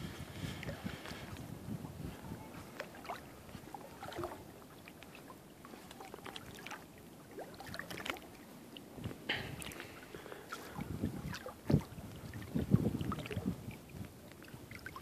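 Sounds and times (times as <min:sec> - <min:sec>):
creek water trickling: 0:00.0 - 0:15.0
small splashes: 0:02.6 - 0:15.0.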